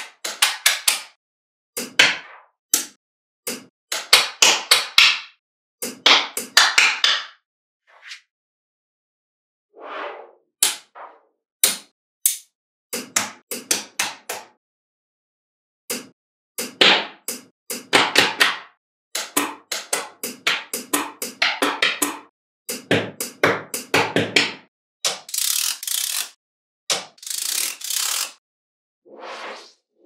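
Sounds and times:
magnetic balls clicking together: 25.1s - 26.4s.

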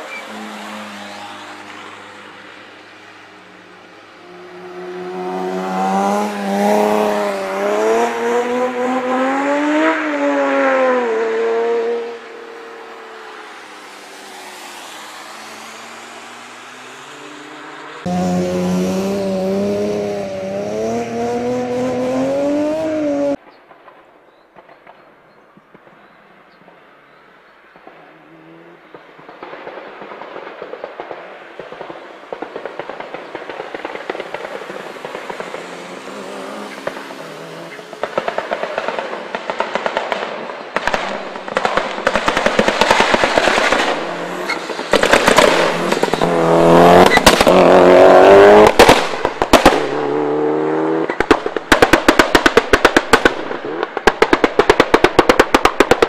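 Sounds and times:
car engine approaching: 0.2s - 23.4s, 41.9s - 52.4s
exhaust pops and bangs: 28.9s - 35.7s, 37.9s - 50.1s, 51.0s - 56.0s.

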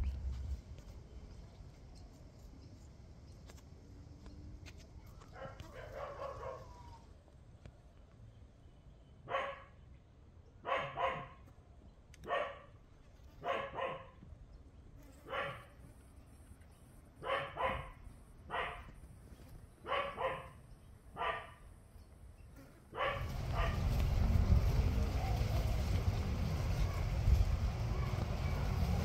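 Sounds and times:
dog barking: 5.3s - 6.9s, 9.2s - 9.8s, 10.6s - 11.4s, 12.2s - 12.8s, 13.4s - 14.2s, 15.2s - 15.7s, 17.2s - 18.9s, 19.8s - 20.6s, 21.2s - 21.6s, 22.9s - 23.8s.

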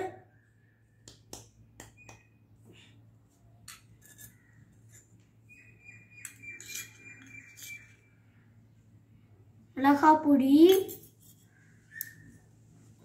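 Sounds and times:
steel cup and spoon clinking on clay pots: 3.6s - 5.2s, 6.2s - 8.0s, 10.7s - 11.5s.

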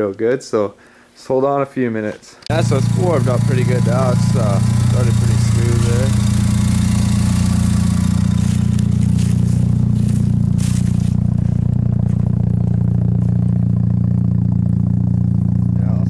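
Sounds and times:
car engine idling: 2.5s - 16.0s
scraping on gravel: 7.4s - 13.4s.

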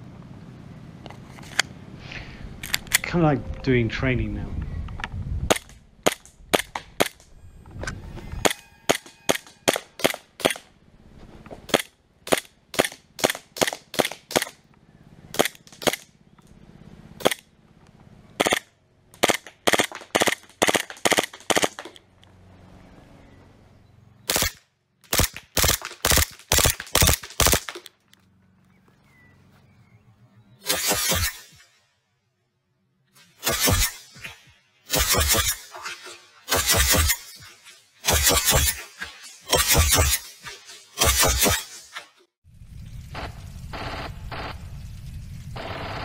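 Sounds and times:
airsoft pistol shots: 8.4s - 10.6s, 18.4s - 22.0s, 24.3s - 27.9s, 30.6s - 31.6s, 33.4s - 40.4s, 41.0s - 41.8s.

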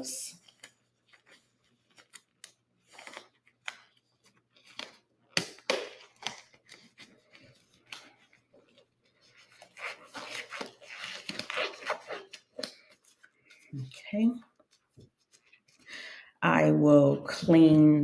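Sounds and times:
rubber gloves rustling and stretching: 0.3s - 15.9s
glove snaps: 4.8s - 6.4s.

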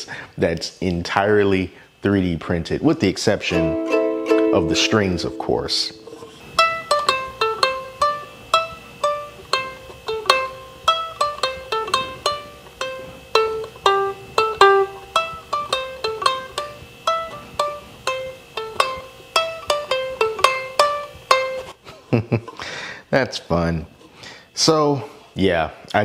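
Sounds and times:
ukulele plucked melody: 3.4s - 21.7s.

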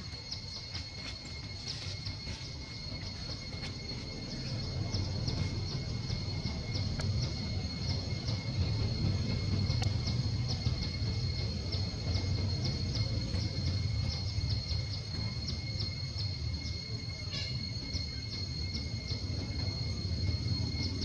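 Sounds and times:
low rumble: 0.0s - 16.2s
brief insect call: 0.0s - 21.0s
high insect drone: 0.0s - 21.0s
insect chirps: 0.0s - 21.0s.

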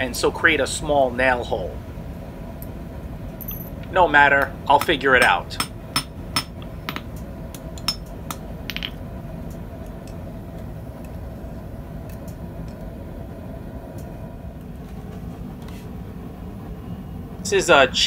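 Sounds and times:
steady low rumble: 0.0s - 18.0s
metal tools clinking on steel: 3.4s - 3.9s.

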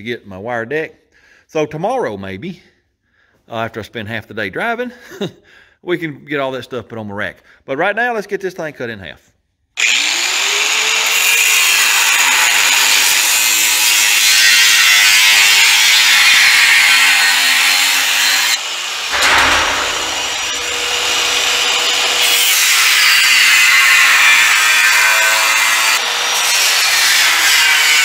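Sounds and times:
power saw cutting steel: 9.8s - 28.0s.

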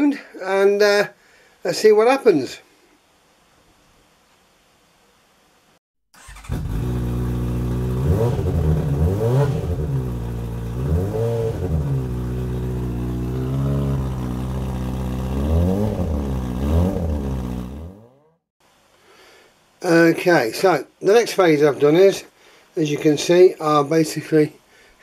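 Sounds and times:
motorcycle engine idling: 6.2s - 9.0s, 9.6s - 18.3s
motorcycle throttle blips: 6.2s - 18.4s.

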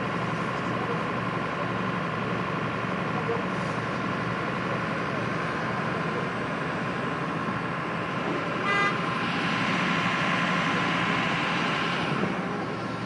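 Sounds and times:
fire engine running: 0.0s - 13.0s
vehicle horn toot: 8.6s - 9.0s.

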